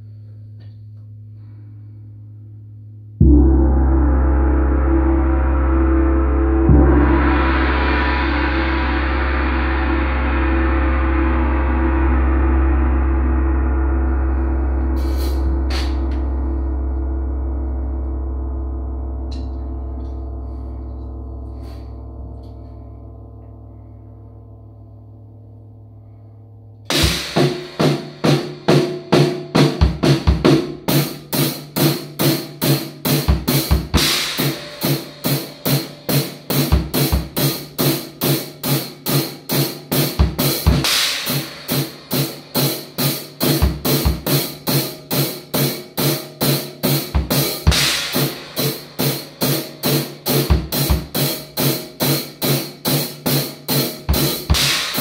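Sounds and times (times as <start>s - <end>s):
crash cymbal: 1.2s - 25.2s, 25.9s - 29.5s, 30.8s - 55.0s
gong ringing: 3.2s - 26.2s, 33.9s - 38.2s
drum kit rock beat: 15.0s - 16.3s, 26.9s - 55.0s.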